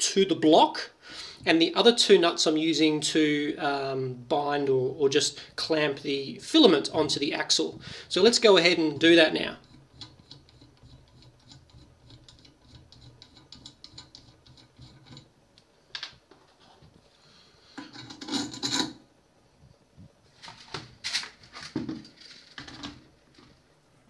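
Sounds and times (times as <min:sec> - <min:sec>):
nut spinning on threaded rod: 0:06.9 - 0:15.4
plastic clacks and knocks: 0:21.5 - 0:23.5.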